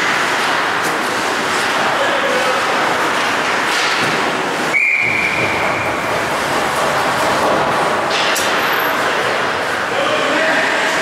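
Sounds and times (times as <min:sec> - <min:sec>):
ice rink background noise: 0:00.0 - 0:11.0
referee's whistle blast: 0:04.7 - 0:05.4.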